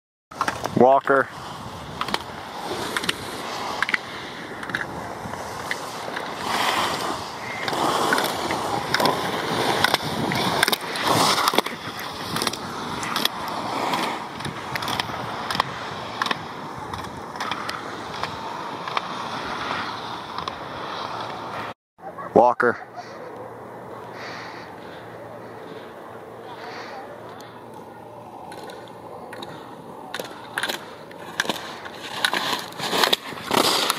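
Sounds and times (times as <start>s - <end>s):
skis scraping on snow: 0.4s - 21.7s, 28.5s - 33.9s.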